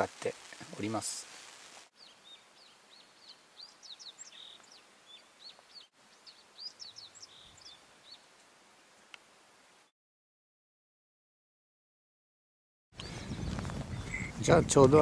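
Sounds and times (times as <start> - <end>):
songbird singing: 1.9 - 9.9, 13.0 - 15.0.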